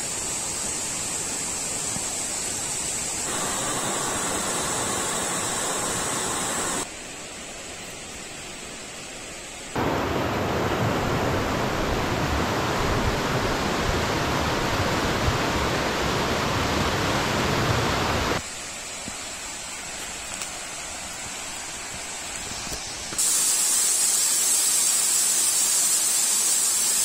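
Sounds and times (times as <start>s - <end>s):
waterfall rushing: 3.0s - 6.9s, 9.8s - 18.4s.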